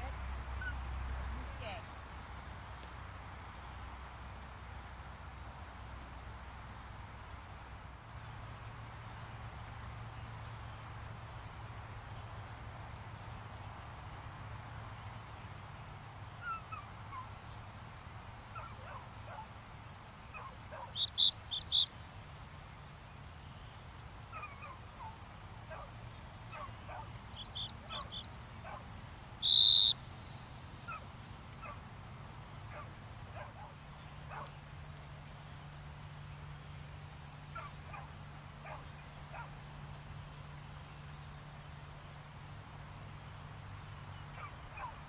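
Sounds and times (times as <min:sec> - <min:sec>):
training whistle toots: 0:21.0 - 0:21.9, 0:29.4 - 0:30.0.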